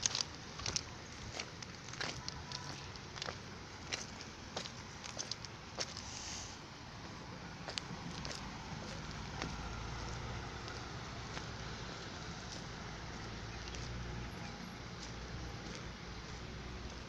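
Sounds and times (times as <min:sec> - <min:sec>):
low rumble of road vehicles: 0:00.0 - 0:17.0.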